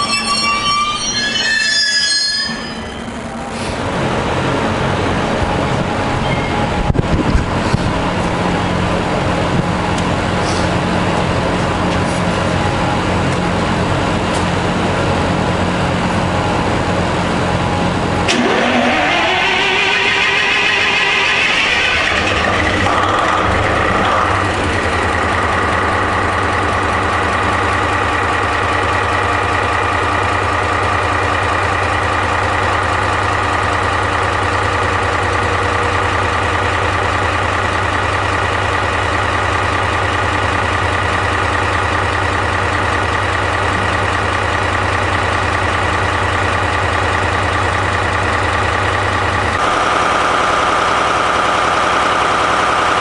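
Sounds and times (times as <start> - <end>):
high whine: 0.0 - 41.7
diesel engine idling: 3.0 - 53.0.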